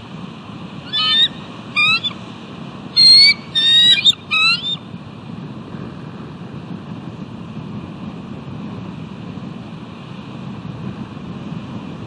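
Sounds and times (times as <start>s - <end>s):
eagle chittering calls: 0.8s - 2.2s, 3.0s - 4.8s.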